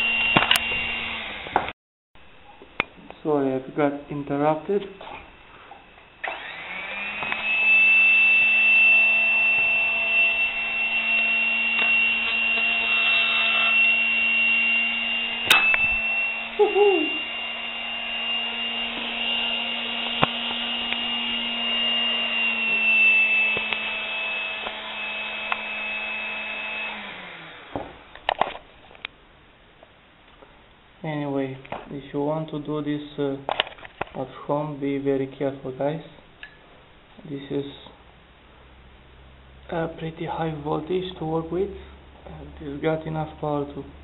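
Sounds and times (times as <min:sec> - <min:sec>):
electric motor whining: 0:00.0 - 0:01.7, 0:06.2 - 0:27.8.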